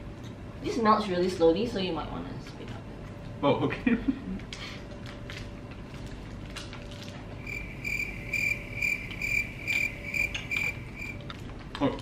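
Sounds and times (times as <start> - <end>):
cricket chirping: 7.4 - 11.2.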